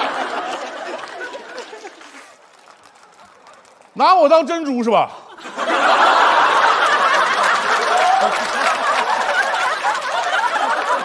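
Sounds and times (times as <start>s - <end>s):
studio audience laughing: 0.0s - 2.4s, 5.1s - 11.0s.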